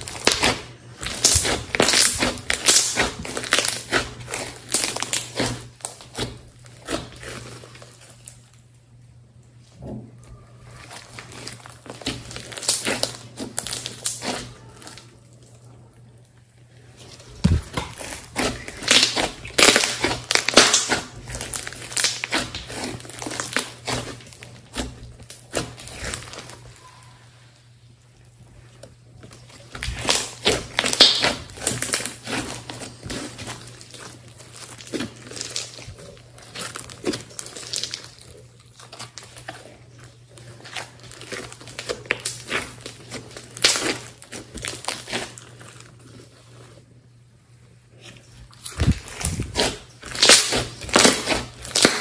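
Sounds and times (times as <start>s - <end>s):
slime squeezed with sticky pops: 0.0s - 8.1s, 10.9s - 15.0s, 17.4s - 27.0s, 29.6s - 38.2s, 38.8s - 45.5s, 48.6s - 52.0s.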